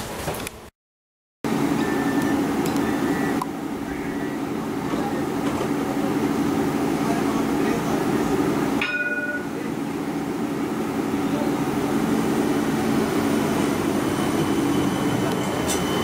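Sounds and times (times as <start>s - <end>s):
tram equipment humming: 1.5s - 16.0s
brief electronic beep: 14.1s - 16.0s.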